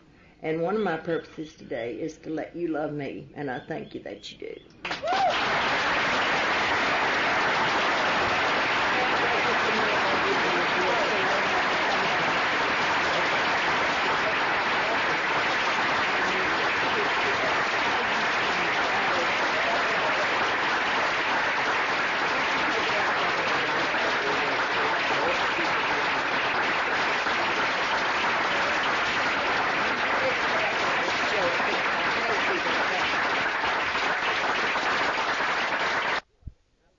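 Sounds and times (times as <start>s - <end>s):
audience applauding: 4.8s - 36.2s.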